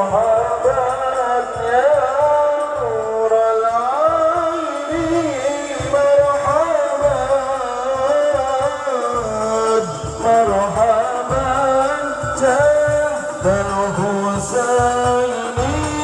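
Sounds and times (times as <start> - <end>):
devotional singing with held notes: 0.0 - 16.0
low drumbeat: 0.0 - 16.0.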